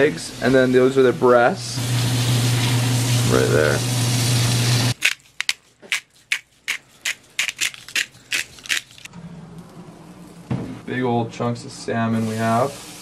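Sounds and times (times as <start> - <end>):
aluminum foil crinkling: 5.0 - 9.1.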